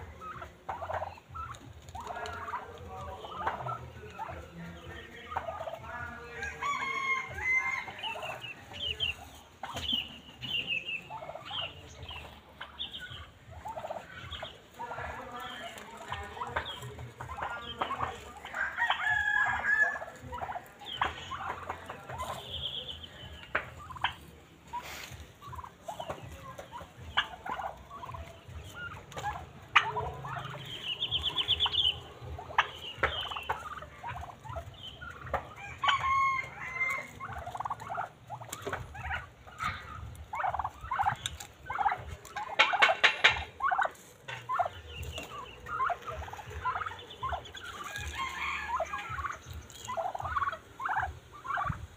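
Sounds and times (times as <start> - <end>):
turkeys calling: 0.0 - 51.9
turkeys gobbling: 0.0 - 51.9.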